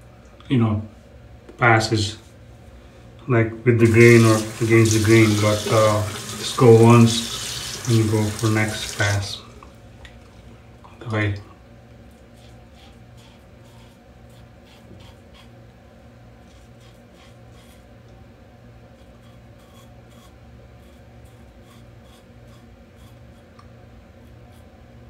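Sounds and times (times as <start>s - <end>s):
razor scraping stubble: 19.0s - 23.6s.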